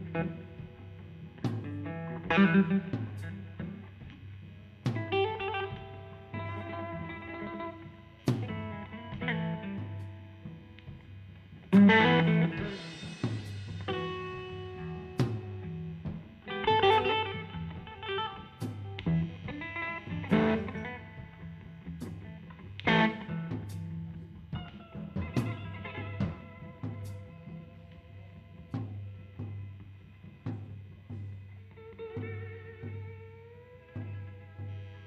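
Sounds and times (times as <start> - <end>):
electric guitar chords: 0.0 - 35.0
drum hits: 23.5 - 27.2.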